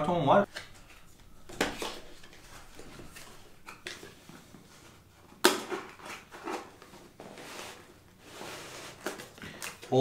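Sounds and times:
cardboard rustling and scraping: 1.6s - 9.4s.

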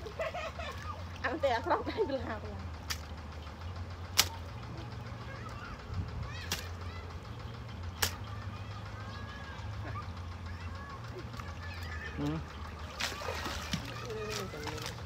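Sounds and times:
hands in wet mud and water: 0.0s - 15.0s
low steady hum: 0.0s - 15.0s
sharp slaps in mud: 2.8s - 3.2s, 4.1s - 4.6s, 6.4s - 6.9s, 7.9s - 8.4s, 12.9s - 15.0s.

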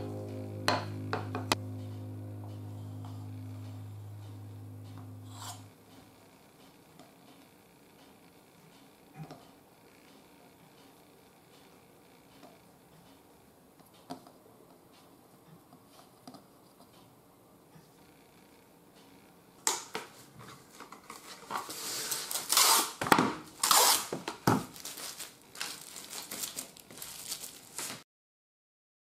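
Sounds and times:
cling film crinkling: 20.7s - 28.0s.

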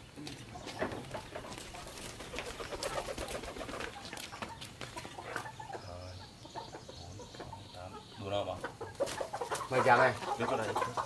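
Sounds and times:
chickens clucking: 0.0s - 11.0s.

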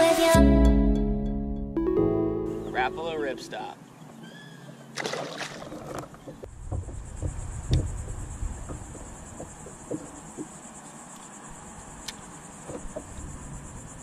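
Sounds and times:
insect chorus buzzing: 6.5s - 14.0s.

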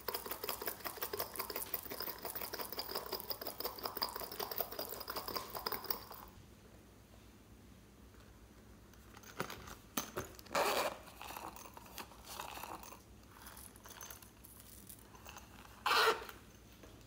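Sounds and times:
zipper rasping: 10.5s - 13.8s, 15.0s - 16.4s
soft rubbery rubbing: 15.0s - 16.4s.

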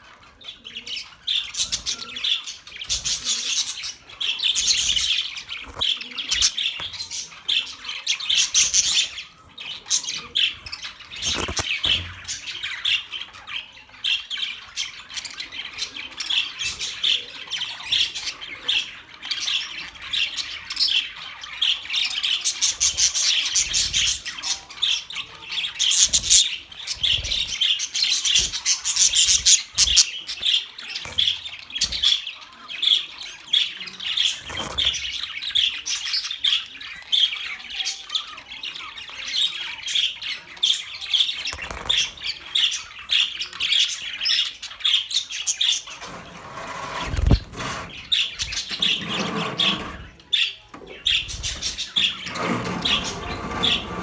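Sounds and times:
budgerigars chattering: 0.2s - 54.0s.

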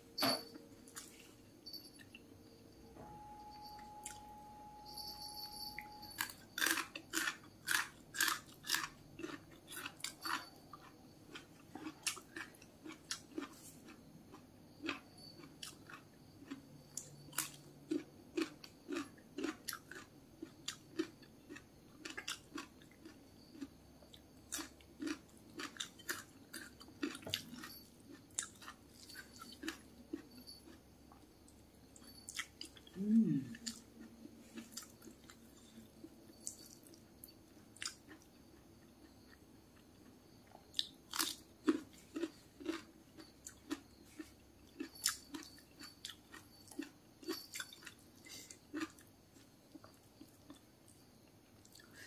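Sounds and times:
faint steady tone: 0.0s - 8.1s, 8.9s - 52.0s
person chewing crunchy food: 6.0s - 52.0s.

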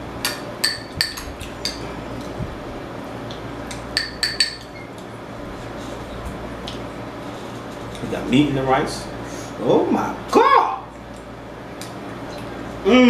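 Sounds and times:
spoon clinking against glass bowl: 0.3s - 1.8s, 4.0s - 4.8s.

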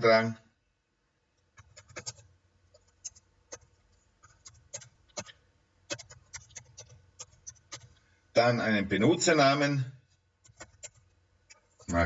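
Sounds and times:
computer keyboard keys clicking: 1.6s - 8.0s, 10.4s - 11.9s.

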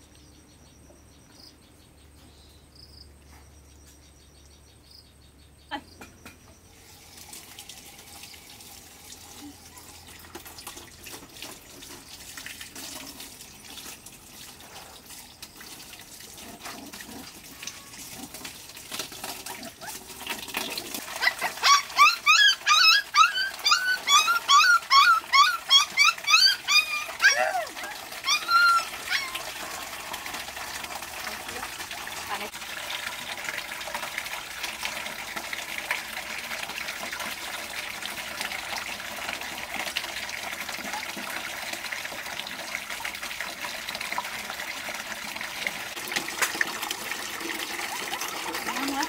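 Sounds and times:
tap water running into metal basin: 6.1s - 49.0s
puppies yelping and whining: 19.4s - 20.2s, 21.0s - 29.7s.

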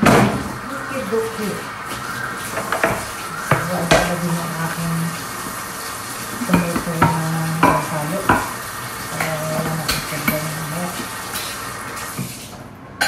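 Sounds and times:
tin cans clacking on countertop: 6.4s - 11.6s.

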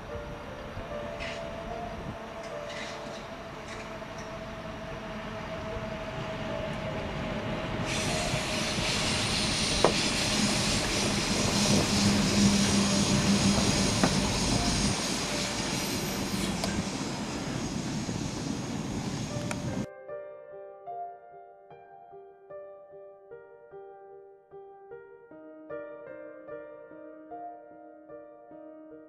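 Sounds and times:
diesel locomotive engine: 0.0s - 19.9s
train wheels rumbling on rails: 0.0s - 19.9s.

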